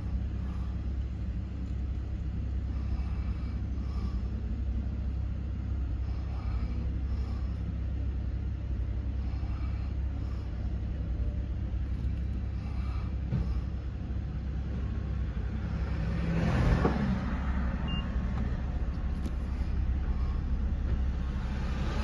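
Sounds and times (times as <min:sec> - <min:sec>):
car and traffic rumble: 0:00.0 - 0:22.0
vehicle passing close: 0:14.8 - 0:22.0.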